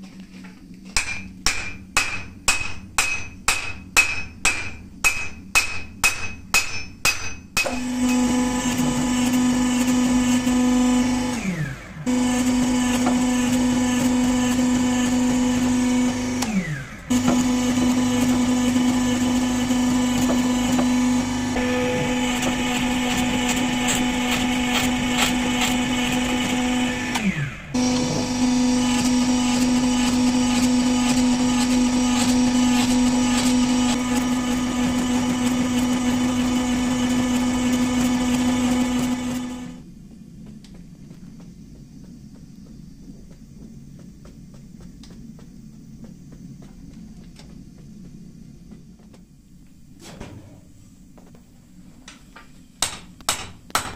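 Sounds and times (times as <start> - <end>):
hydraulic press motor hum: 7.6 - 39.8.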